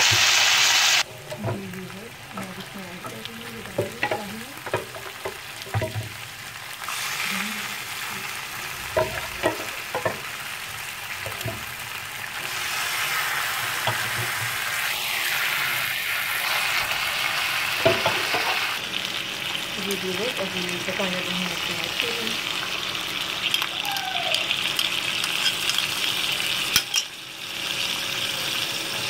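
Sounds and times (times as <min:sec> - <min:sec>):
meat sizzling in oil: 0:00.0 - 0:29.0
spatula knocking against pan: 0:03.6 - 0:06.1, 0:09.0 - 0:10.3.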